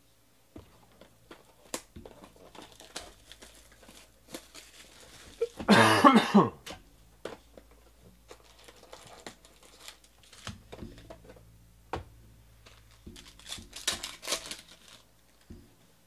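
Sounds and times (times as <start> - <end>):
plastic wrapper crinkling: 0.6 - 5.7, 7.4 - 11.4, 12.6 - 15.6
cards tapping and clicking: 6.7 - 15.8.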